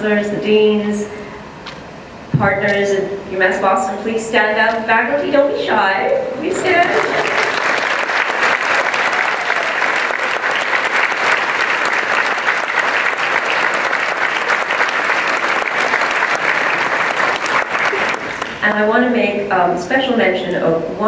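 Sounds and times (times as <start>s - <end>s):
audience applauding: 6.4s - 18.8s.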